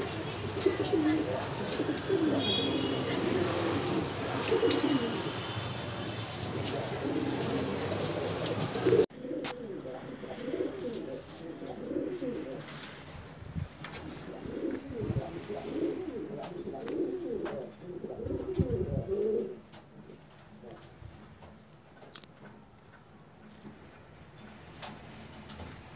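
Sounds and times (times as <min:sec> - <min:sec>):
pigeons cooing: 0:00.0 - 0:12.9, 0:13.9 - 0:20.9.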